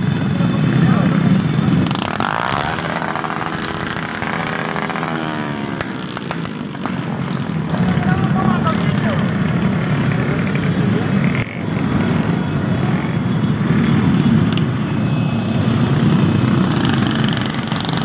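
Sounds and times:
people's voices: 0.0 - 13.1
many motorcycle engines rumbling: 0.0 - 18.0.

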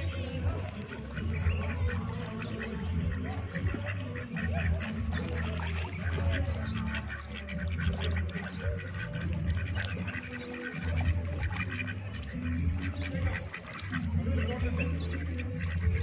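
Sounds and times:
ducks quacking: 0.0 - 16.0
steady low rumble: 10.8 - 16.0.

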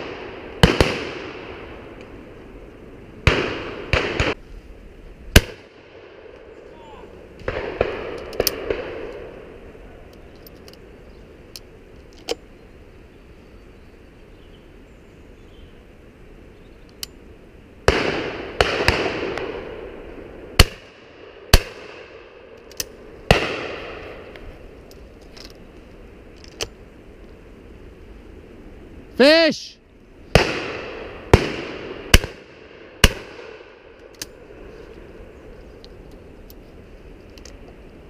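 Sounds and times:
shotguns firing with echoes: 0.0 - 1.6, 7.4 - 9.2, 17.9 - 19.8, 23.3 - 24.0, 30.3 - 33.9.

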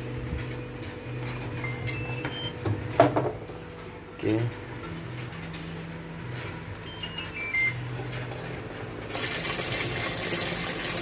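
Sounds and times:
washing machine beeps: 0.8 - 2.7, 6.8 - 8.0.

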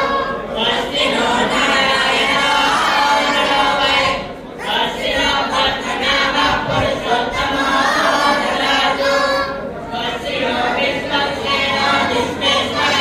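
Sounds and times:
crowd singing a chant: 0.0 - 13.0.

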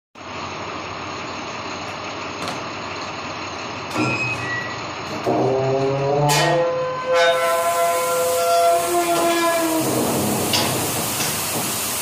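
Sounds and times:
heavy truck engine running: 0.2 - 12.0.

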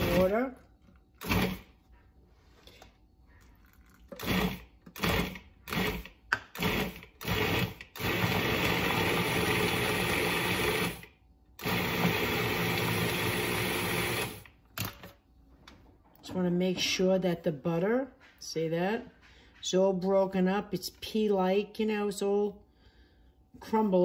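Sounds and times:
food processor motor pulsing: 1.2 - 1.7, 4.1 - 14.5.

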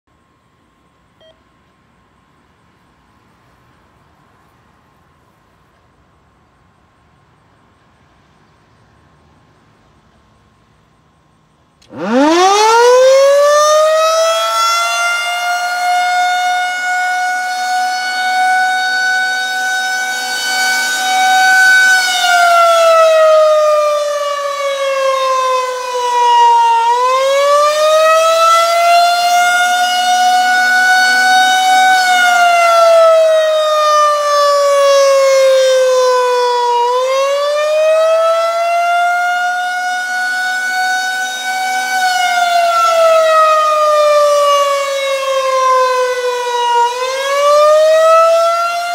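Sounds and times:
rotating siren wailing: 11.9 - 48.9.

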